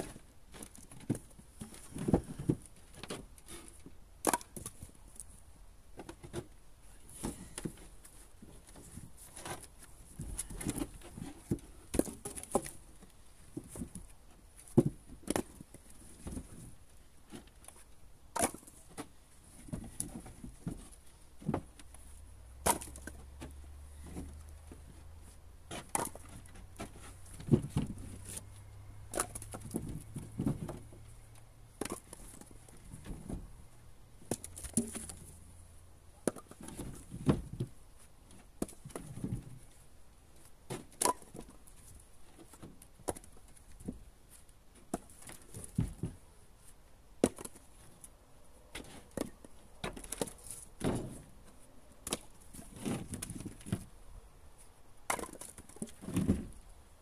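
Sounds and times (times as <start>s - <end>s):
logs knocking on logs: 13.5s - 16.6s, 18.3s - 21.9s, 22.6s - 24.8s, 25.7s - 28.4s, 29.1s - 31.0s, 31.8s - 33.5s, 36.2s - 39.6s, 40.7s - 41.6s, 44.8s - 46.2s, 47.2s - 47.8s, 55.1s - 56.6s.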